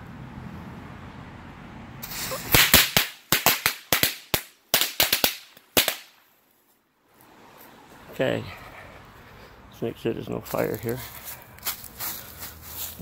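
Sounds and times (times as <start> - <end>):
firecracker fuse hiss: 2.0 - 6.0
firecrackers banging: 2.0 - 6.2.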